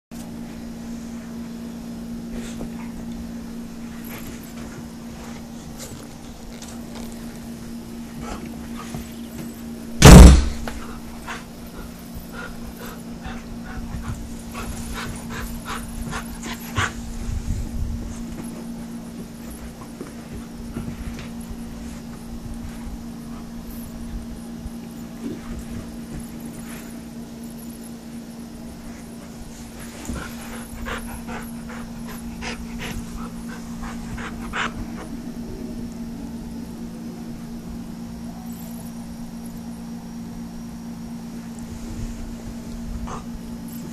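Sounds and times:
steady low hum: 0:00.2 - 0:43.9
dog panting: 0:10.8 - 0:17.2, 0:29.8 - 0:35.2.

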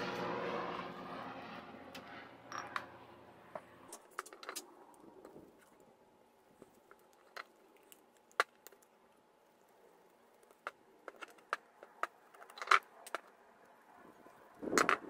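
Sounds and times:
faint steady hum: 0:00.0 - 0:15.0
small metallic clicks and taps: 0:03.5 - 0:05.9, 0:06.6 - 0:09.0, 0:10.1 - 0:13.8.

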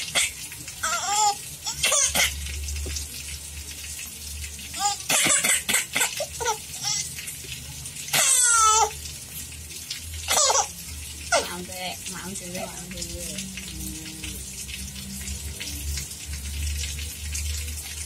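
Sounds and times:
baby laughing: 0:00.0 - 0:02.4, 0:04.8 - 0:07.2, 0:08.2 - 0:09.0, 0:10.3 - 0:10.7.

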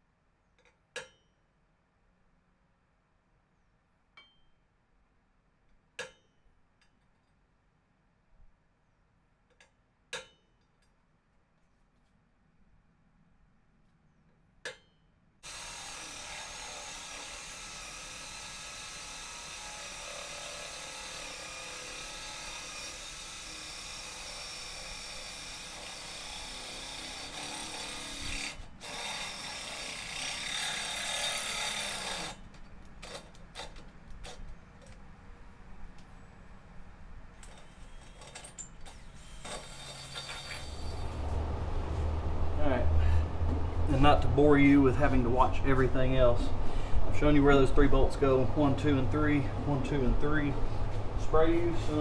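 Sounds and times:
electric drill boring through steel: 0:15.4 - 0:32.4, 0:37.4 - 0:41.2.

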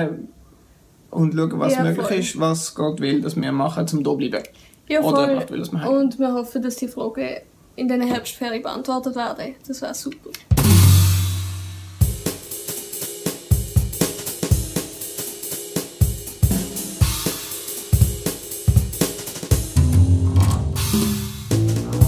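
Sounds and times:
drum kit beat: 0:10.4 - 0:22.0
sustained bass notes: 0:19.8 - 0:22.0.

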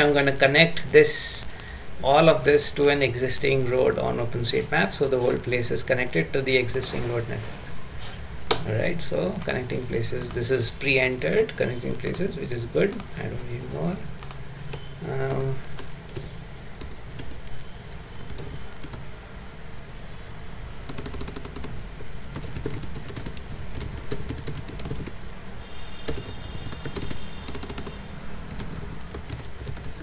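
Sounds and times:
computer keyboard typing: 0:09.1 - 0:19.1, 0:20.2 - 0:30.0.

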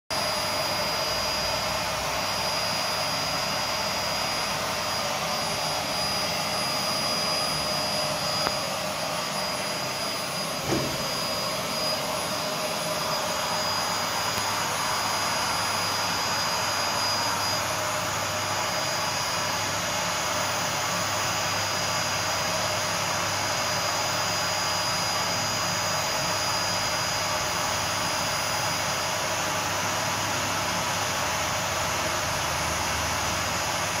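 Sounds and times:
grooming vacuum brush humming: 0:00.2 - 0:34.0.

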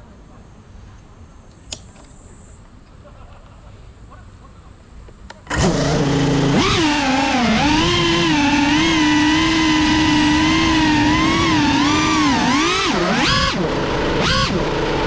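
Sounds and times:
faint outdoor background: 0:00.0 - 0:15.0
drone motors whining: 0:05.4 - 0:15.0.

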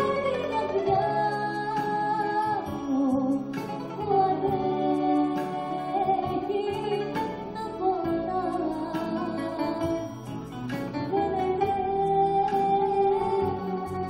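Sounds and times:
woman singing into microphone: 0:00.0 - 0:14.0.

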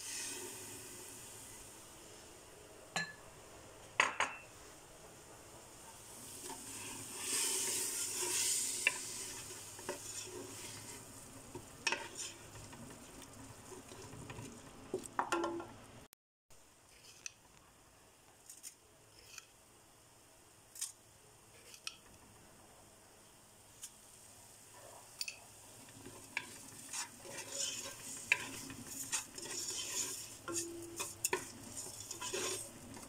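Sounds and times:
light sizzle: 0:00.0 - 0:33.0
wooden spoon stirring and scraping pot: 0:05.8 - 0:15.3, 0:16.9 - 0:17.6, 0:24.7 - 0:33.0.

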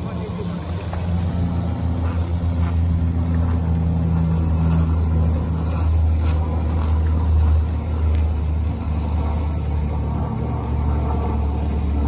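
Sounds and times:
engine droning: 0:00.0 - 0:12.0.

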